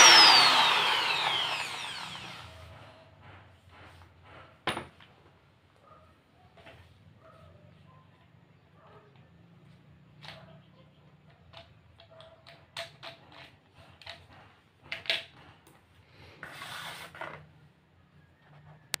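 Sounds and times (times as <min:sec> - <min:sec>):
rubbing scrape on floor: 0:16.4 - 0:17.5.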